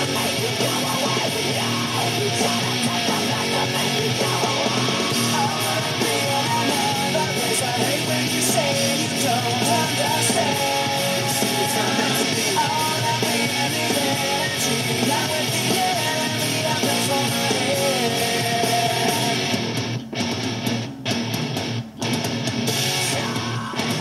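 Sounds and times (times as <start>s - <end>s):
nu-metal rock song: 0.0s - 24.0s.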